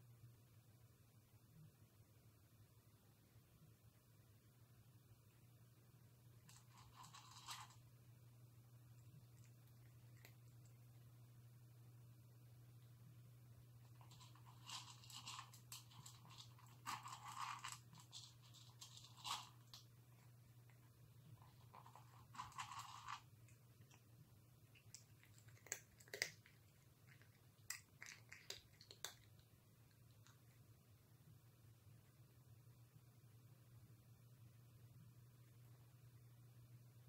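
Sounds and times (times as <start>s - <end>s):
cat crunching dry kibble: 6.4s - 7.8s, 8.9s - 11.0s, 13.8s - 24.1s, 24.7s - 30.5s.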